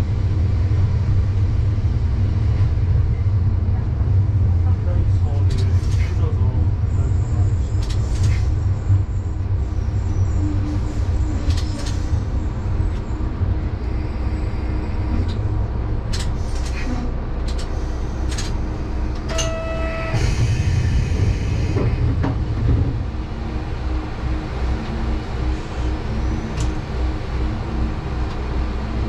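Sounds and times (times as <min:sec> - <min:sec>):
short electronic tone: 0:19.3 - 0:20.2.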